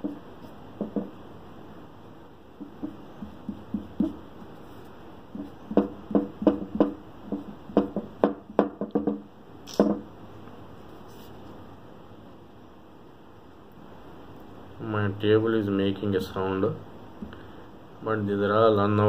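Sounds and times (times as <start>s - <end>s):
table knocking and creaking: 0.8s - 1.2s, 2.6s - 4.3s, 5.3s - 10.1s.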